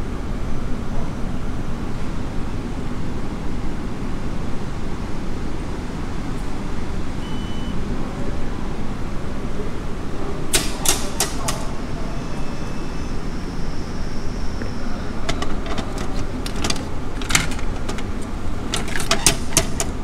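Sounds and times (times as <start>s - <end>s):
vending machine door clicks: 10.5s - 11.8s, 15.2s - 20.0s.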